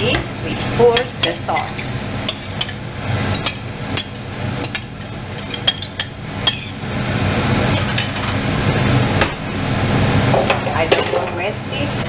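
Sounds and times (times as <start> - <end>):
metal utensil clinking ceramic bowl: 0.6 - 6.7.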